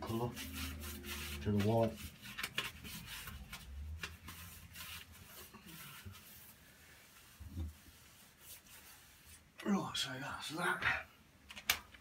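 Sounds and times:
paintbrush swishing on wall: 0:00.0 - 0:09.6.

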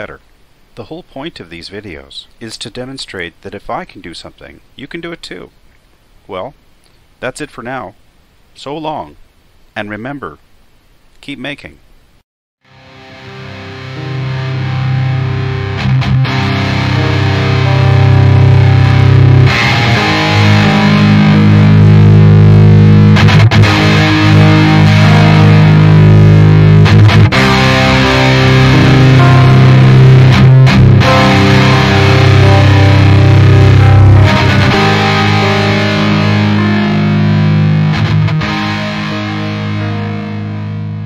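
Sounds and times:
rock music with distorted guitar: 0:12.7 - 0:41.0.

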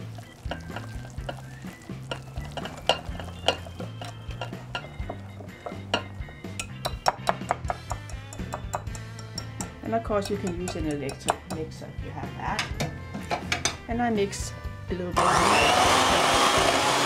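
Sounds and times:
background music: 0:00.0 - 0:17.0
whisk clicking against glass bowl: 0:02.1 - 0:11.6.

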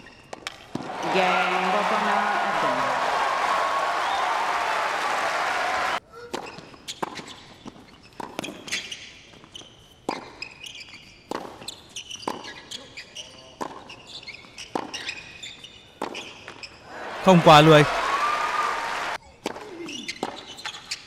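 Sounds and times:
shoes squeaking on hard court: 0:00.0 - 0:00.8, 0:06.3 - 0:16.9, 0:19.4 - 0:21.0.

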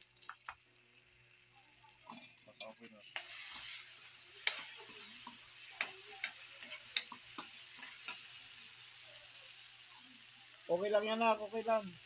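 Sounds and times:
vegetables sizzling in a wok: 0:00.0 - 0:12.0
spatula clicking against a pan: 0:05.3 - 0:08.2.

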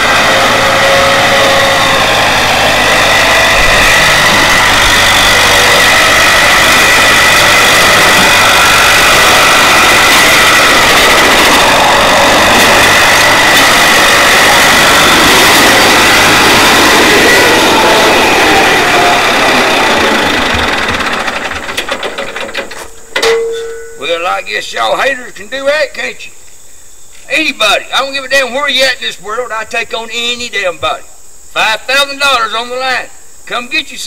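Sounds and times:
high whine: 0:00.0 - 0:22.2, 0:22.8 - 0:25.8
tractor diesel engine running: 0:00.0 - 0:24.4.

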